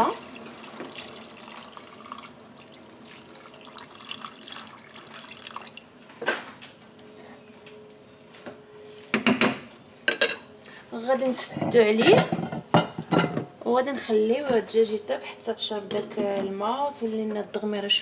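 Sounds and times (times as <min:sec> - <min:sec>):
water pouring into a pot: 0:00.0 - 0:05.9.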